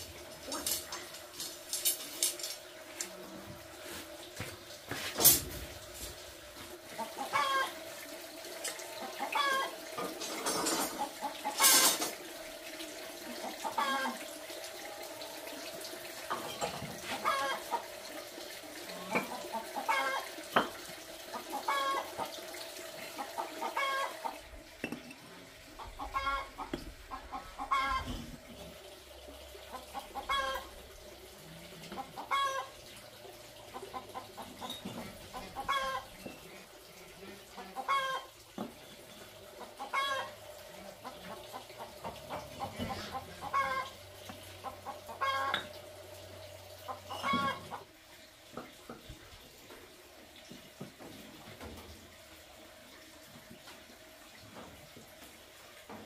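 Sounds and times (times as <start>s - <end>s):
chickens clucking: 5.0s - 48.0s.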